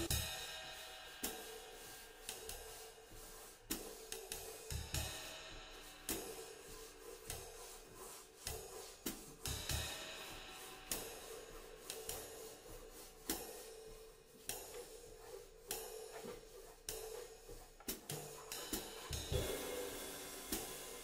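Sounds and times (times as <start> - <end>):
swing drumming on drum kit: 0.0 - 1.7, 13.2 - 21.0
cymbals and hi-hat washing: 0.0 - 21.0.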